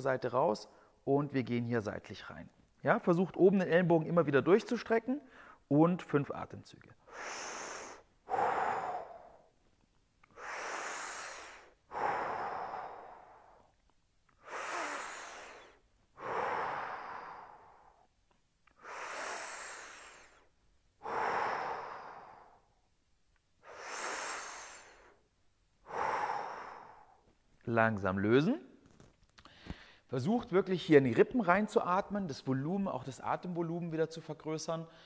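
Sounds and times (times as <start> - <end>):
man breathing deeply: 5.3 - 5.7, 7.0 - 9.6, 10.2 - 22.9, 23.6 - 25.2, 25.8 - 27.3, 29.4 - 30.1.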